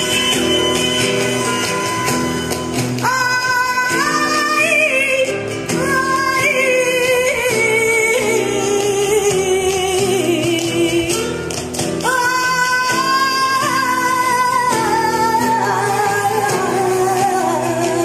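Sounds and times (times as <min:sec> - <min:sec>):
instrumental accompaniment: 0:00.0 - 0:18.0
person singing: 0:12.0 - 0:18.0.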